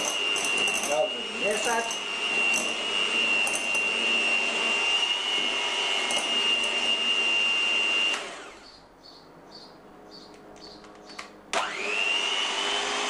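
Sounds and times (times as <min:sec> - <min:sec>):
electric hand mixer whining: 0:00.0 - 0:08.8, 0:11.5 - 0:13.0
mixer motor winding down: 0:00.0 - 0:08.8, 0:11.5 - 0:13.0.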